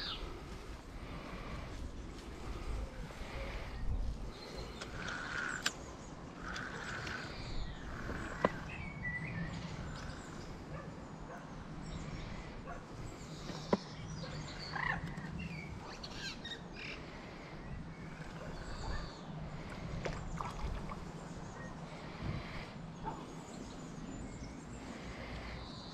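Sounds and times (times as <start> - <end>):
birds chirping: 0.0 - 25.9
steady low rumble: 0.0 - 25.9.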